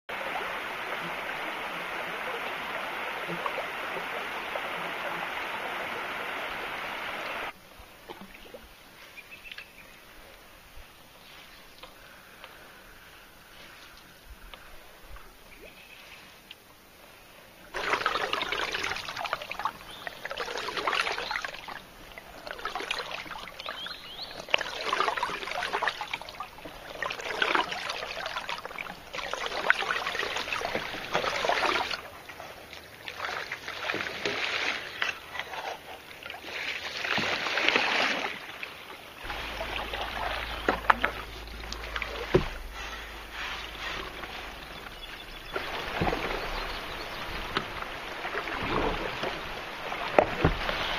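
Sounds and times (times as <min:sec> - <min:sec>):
paddle swishing through water: 0:00.1 - 0:16.5, 0:17.1 - 0:50.9
low rumble: 0:39.2 - 0:49.6.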